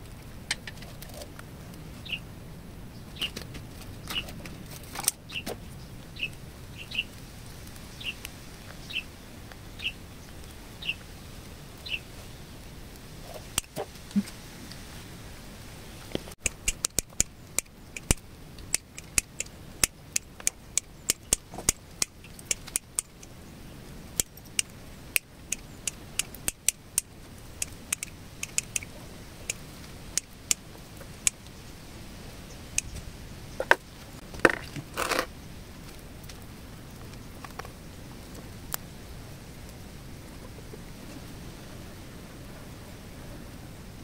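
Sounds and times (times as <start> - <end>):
scraping rustle: 3.1 - 5.8, 32.9 - 36.1
scissors snipping twigs: 16.1 - 23.3, 24.2 - 30.6.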